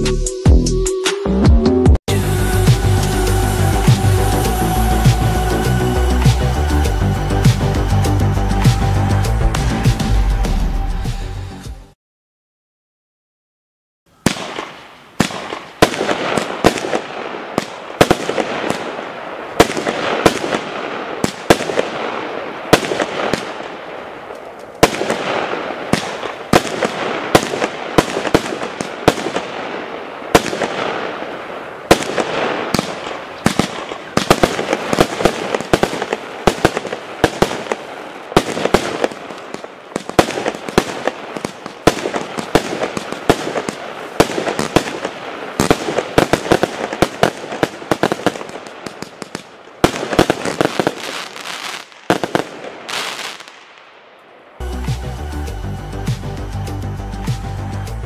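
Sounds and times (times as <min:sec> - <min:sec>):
fireworks hissing: 0:02.1 - 0:10.0, 0:22.6 - 0:53.6
fireworks banging: 0:14.2 - 0:54.7.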